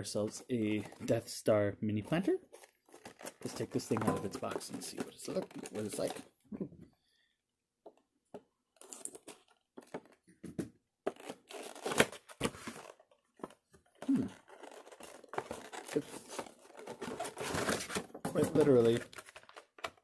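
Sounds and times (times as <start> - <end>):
cardboard rustling and tearing: 2.2 - 6.3, 11.0 - 20.0.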